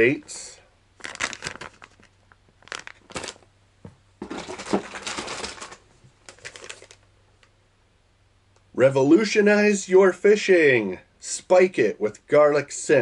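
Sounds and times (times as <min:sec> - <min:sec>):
plastic package crinkling: 0:01.0 - 0:03.5, 0:04.2 - 0:07.5.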